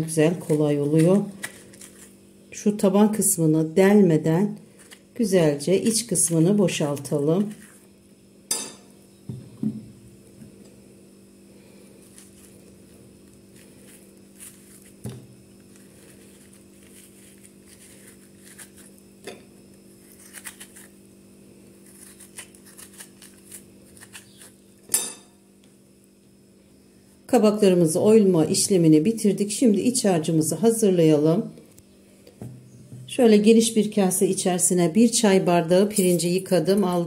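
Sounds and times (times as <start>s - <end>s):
teaspoon scraping zucchini: 0.1s - 2.2s, 5.7s - 7.9s, 15.6s - 19.0s, 20.0s - 20.9s, 21.8s - 24.6s, 35.9s - 36.4s.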